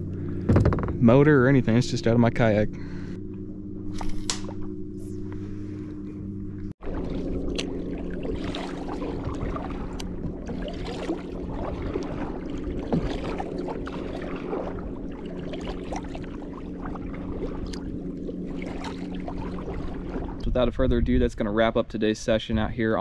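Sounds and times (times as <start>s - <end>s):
low hum: 0.0s - 23.0s
paddle splashing through water: 6.8s - 20.4s.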